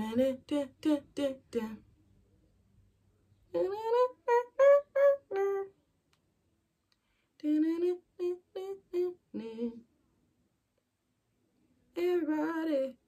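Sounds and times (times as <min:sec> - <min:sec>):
woman humming wordless syllables: 0:03.5 - 0:05.8, 0:07.4 - 0:09.8.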